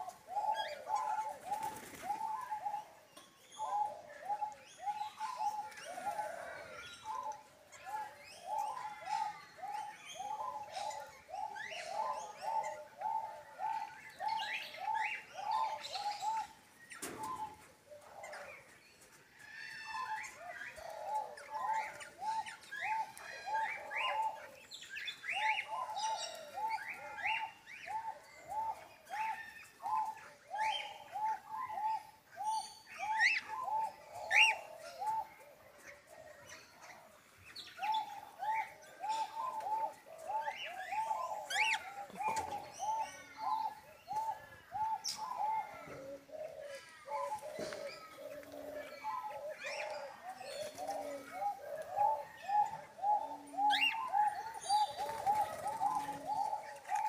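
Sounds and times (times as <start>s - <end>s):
birds repeating low notes: 20.0s - 57.0s.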